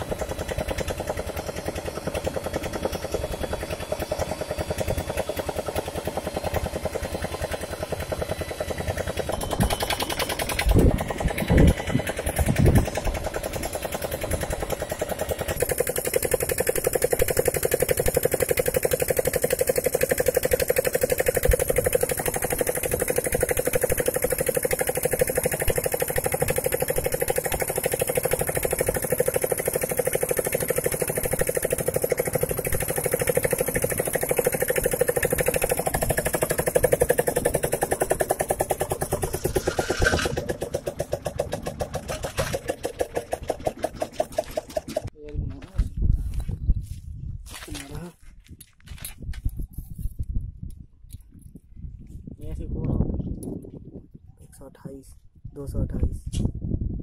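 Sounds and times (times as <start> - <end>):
core drill cutting concrete: 8.9 - 40.6.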